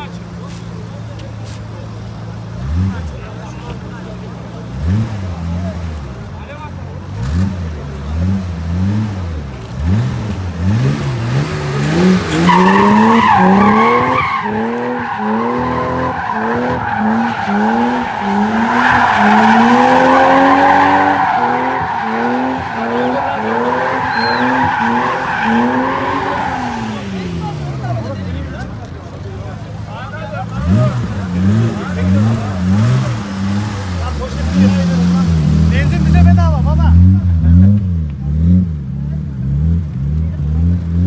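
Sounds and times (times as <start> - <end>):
car engine revving: 0.0 - 41.0
tyres squealing: 11.9 - 27.9.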